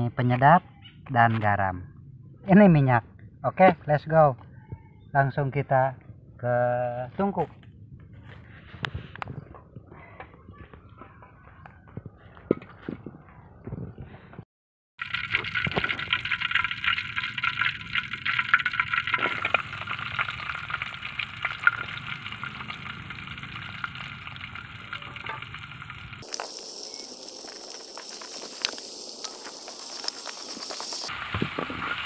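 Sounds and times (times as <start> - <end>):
oil sizzling in a wok: 15.0 - 32.0
spatula stirring: 26.2 - 31.1.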